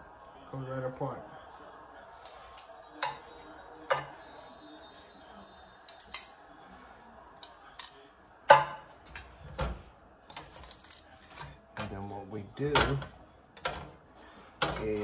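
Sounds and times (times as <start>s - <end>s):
metal tongs clinking on pan: 5.9s - 6.4s.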